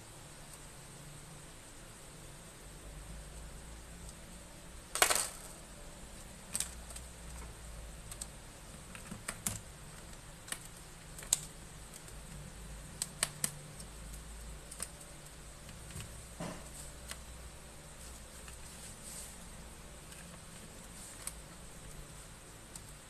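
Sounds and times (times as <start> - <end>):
laptop parts clattering: 5.0 - 5.6
laptop parts clicking and tapping: 6.5 - 17.3.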